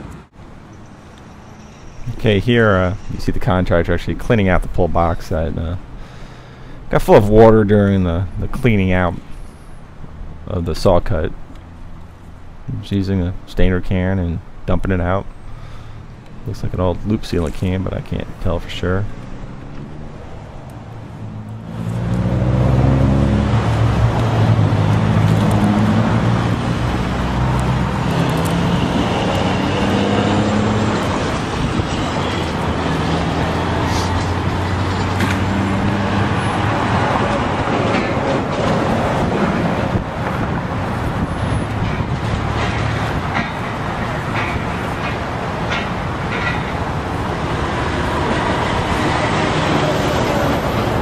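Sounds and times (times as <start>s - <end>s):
traffic noise: 0.0s - 51.0s
low engine hum: 15.3s - 51.0s.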